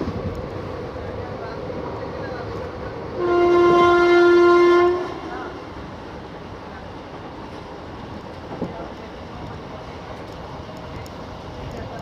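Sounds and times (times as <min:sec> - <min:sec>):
train running noise: 0:00.0 - 0:12.0
train horn blast: 0:03.2 - 0:05.6.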